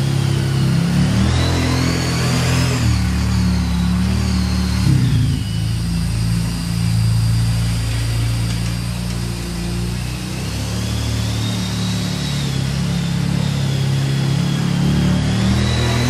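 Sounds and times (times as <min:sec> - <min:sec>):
atv engine running: 0:12.5 - 0:16.0.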